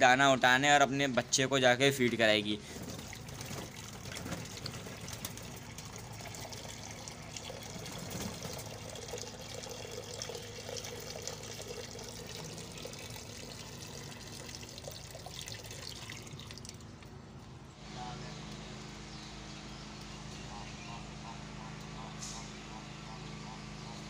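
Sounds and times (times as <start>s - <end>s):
water pouring into bowl: 2.8s - 16.9s.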